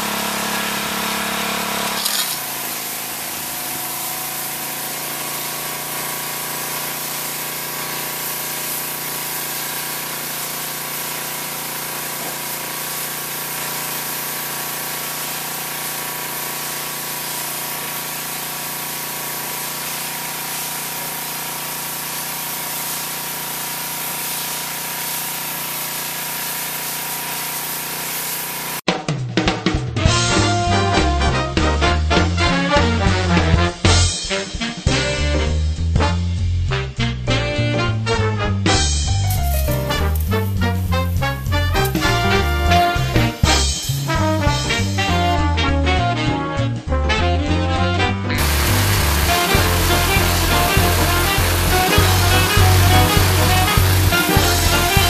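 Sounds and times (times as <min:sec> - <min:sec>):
water jet hissing against siding: 0:00.0 - 0:28.8, 0:39.2 - 0:45.3, 0:48.4 - 0:55.0
pressure washer engine drone: 0:00.0 - 0:28.9, 0:38.8 - 0:45.4, 0:48.4 - 0:55.0.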